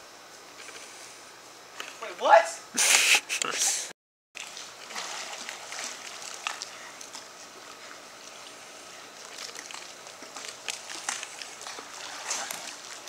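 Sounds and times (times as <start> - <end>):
small splashes and drips: 4.4 - 13.0
water sloshing and lapping: 4.4 - 13.0.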